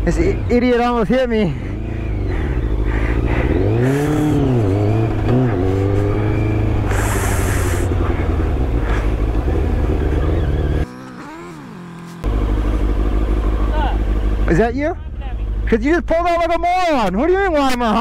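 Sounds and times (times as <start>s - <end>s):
motorcycle engine revving: 0.0s - 14.7s
short hiss: 6.9s - 7.9s.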